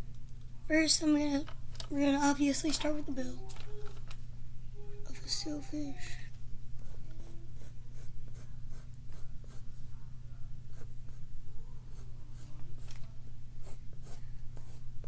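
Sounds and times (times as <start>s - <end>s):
steady low hum: 0.0s - 15.0s
pencil scratching strokes: 6.8s - 9.8s, 13.6s - 15.0s.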